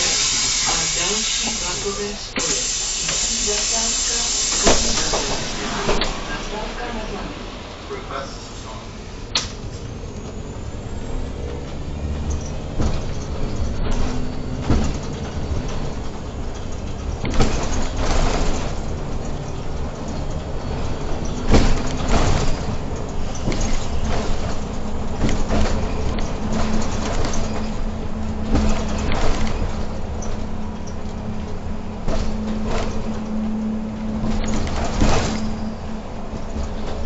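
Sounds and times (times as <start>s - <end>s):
bus engine and road noise: 0.0s - 37.0s
sharp knocks and rattles: 11.5s - 37.0s.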